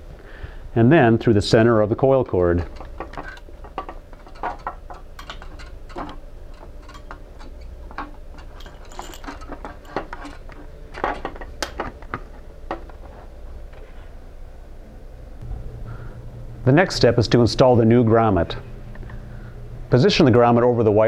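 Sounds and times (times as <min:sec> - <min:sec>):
plastic and rubber parts rustling: 0:02.6 - 0:14.0.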